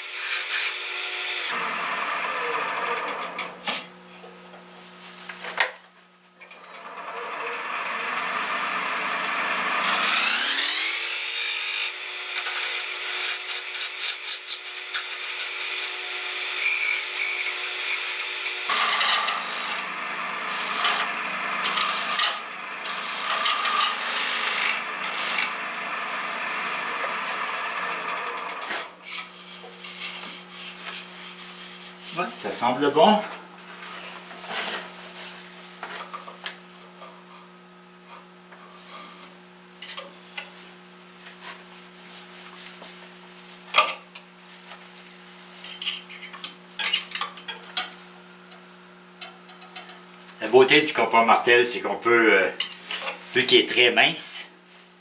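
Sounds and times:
lathe hum: 6.7 - 14.1, 14.7 - 29.2
gouge scraping spinning wood: 7.9 - 32.4.

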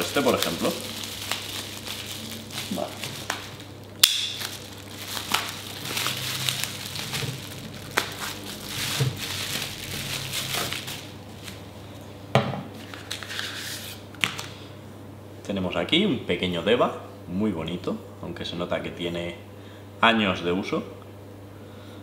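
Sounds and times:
bubble wrap snapping: 0.0 - 11.7
bubble wrap crinkling: 0.0 - 12.1.

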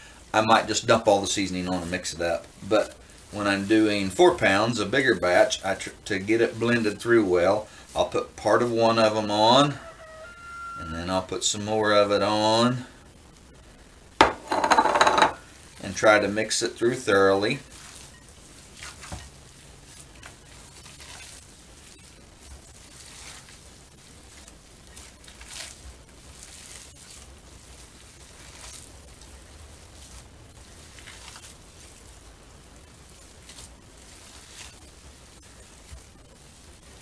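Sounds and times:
hands squishing raw meat: 19.9 - 21.9, 22.5 - 32.2, 33.1 - 34.9.

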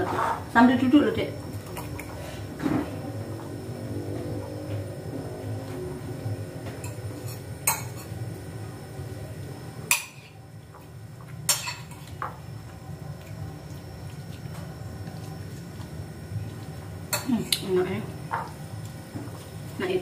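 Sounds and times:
low hum: 1.0 - 11.3
spoons clinking on plates: 6.8 - 8.2, 11.5 - 12.3.

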